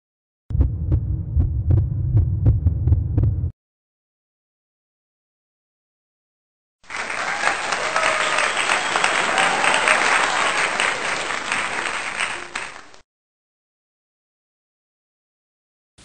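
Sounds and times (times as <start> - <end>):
crowd applauding: 6.8 - 13.0.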